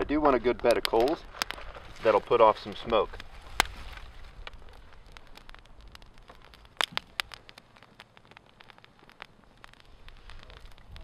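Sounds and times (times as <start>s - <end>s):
twig fire crackling: 0.0s - 11.0s.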